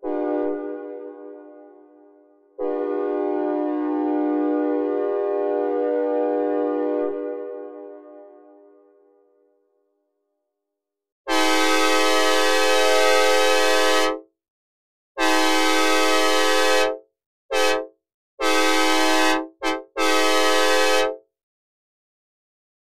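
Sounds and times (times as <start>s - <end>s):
synthesized train horn blasts: 0.0s - 9.3s, 11.3s - 14.2s, 15.2s - 21.2s.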